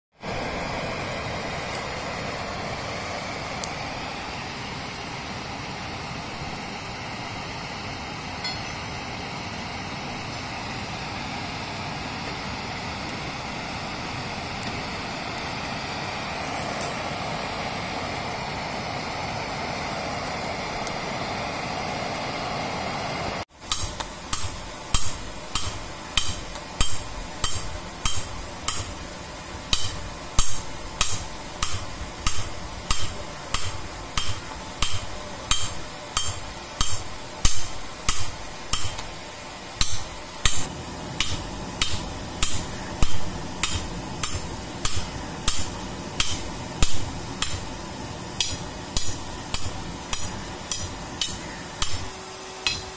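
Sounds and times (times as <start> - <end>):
forge fire rushing: 0.2 - 51.2
hammer striking metal on anvil: 8.4 - 9.0, 23.6 - 29.0, 29.7 - 39.1, 39.8 - 47.7, 48.4 - 52.9.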